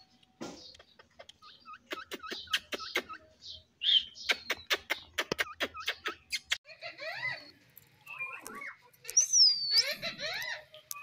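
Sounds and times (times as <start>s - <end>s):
parakeet chirping: 5.6s - 11.0s.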